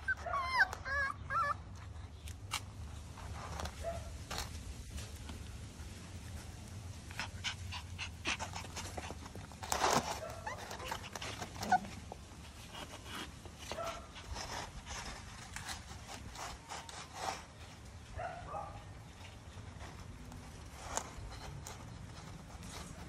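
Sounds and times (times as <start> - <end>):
puppy whimpers: 0.0 - 1.8, 10.1 - 12.2
puppies panting and sniffing: 0.0 - 23.0.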